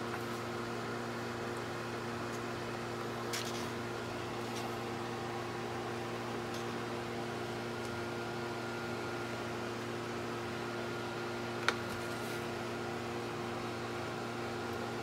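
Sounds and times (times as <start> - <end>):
fan motor hum: 0.0 - 15.0.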